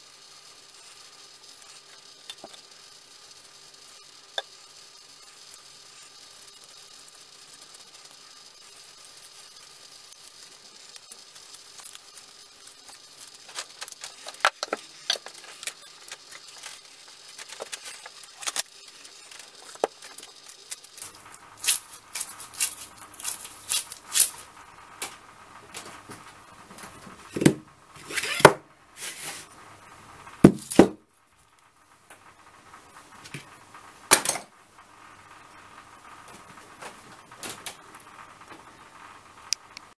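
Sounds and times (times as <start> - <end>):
hatchet knocks and thumps: 30.4 - 31.0.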